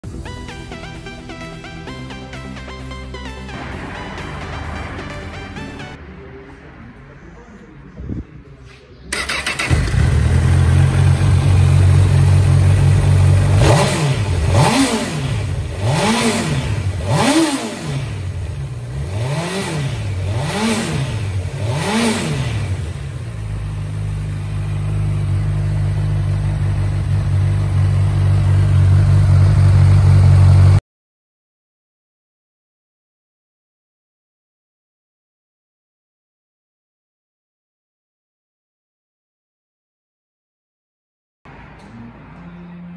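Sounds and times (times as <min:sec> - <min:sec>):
motorcycle engine idling and revving: 0:09.1 - 0:30.8.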